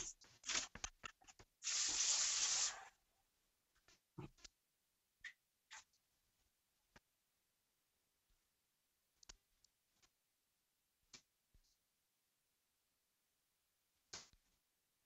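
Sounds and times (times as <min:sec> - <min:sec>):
kitchen tap running: 0:01.6 - 0:02.9.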